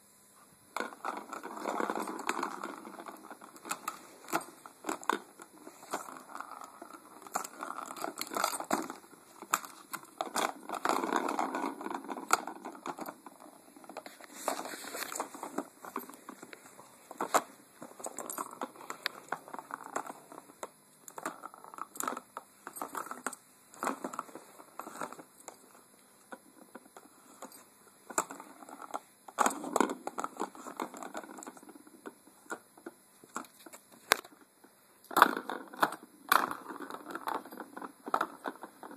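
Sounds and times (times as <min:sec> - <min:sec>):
rustling: 0:00.8 - 0:20.6.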